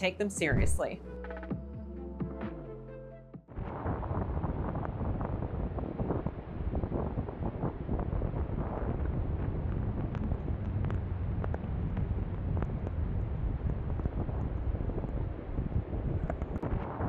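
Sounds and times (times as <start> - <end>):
blizzard wind buffeting microphone: 3.5 - 17.0.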